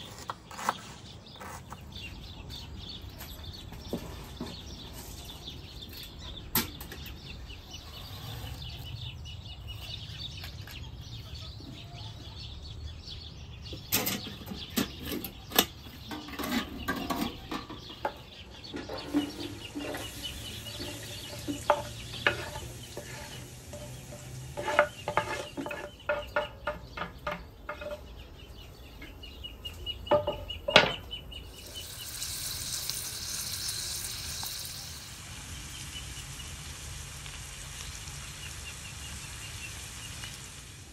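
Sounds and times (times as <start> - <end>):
utensil scraping a metal pan: 13.9 - 28.1
onions sizzling in oil: 19.0 - 26.5, 31.5 - 40.9.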